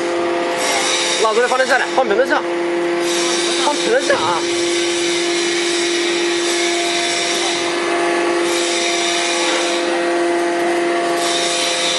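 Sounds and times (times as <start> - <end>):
hydraulic motor and pump hum: 0.0 - 11.9
steady tones: 1.0 - 9.4.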